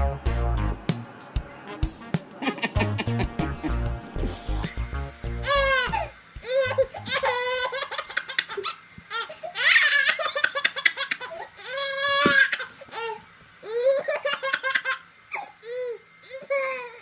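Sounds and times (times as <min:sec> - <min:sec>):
baby laughing and squealing: 0:05.4 - 0:17.0.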